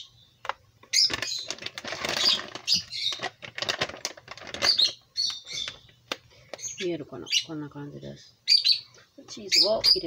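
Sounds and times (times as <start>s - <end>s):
plastic pouch crinkling: 0.4s - 6.6s.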